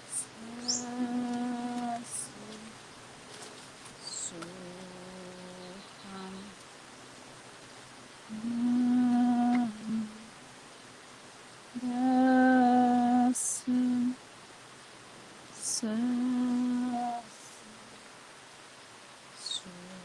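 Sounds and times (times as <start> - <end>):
woman humming: 0.0 - 2.8, 4.0 - 6.6, 8.3 - 10.3, 11.8 - 14.2, 15.6 - 17.4, 19.4 - 20.0.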